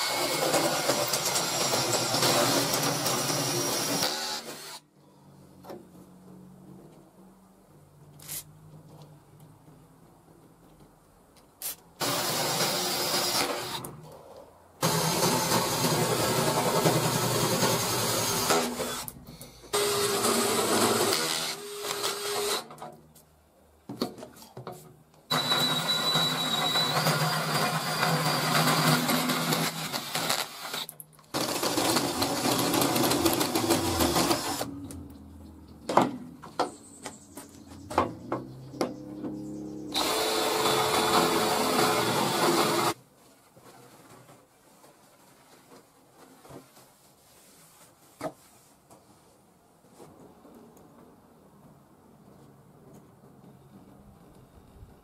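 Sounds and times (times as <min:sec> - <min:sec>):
electric drill boring into steel: 0:00.0 - 0:04.8, 0:19.8 - 0:22.7, 0:25.3 - 0:34.7, 0:39.9 - 0:43.0.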